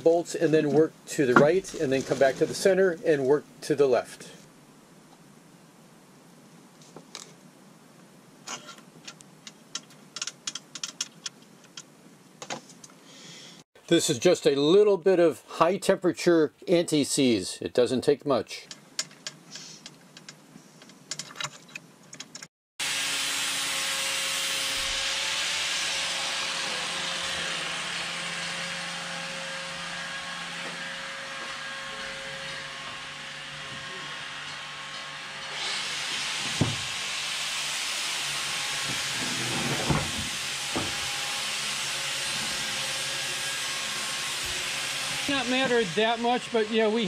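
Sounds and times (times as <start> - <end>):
loud steady hiss: 35.6 - 42.5, 43.1 - 47.0
knocks: 36.5 - 36.9.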